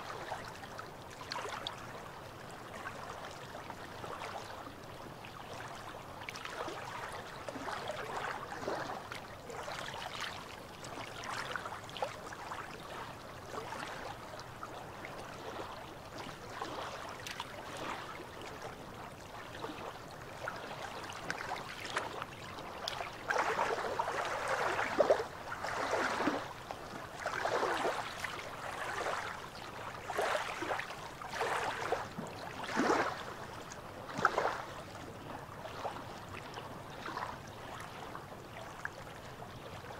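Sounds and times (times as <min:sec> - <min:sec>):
waves lapping against rocks: 0:13.6 - 0:36.3.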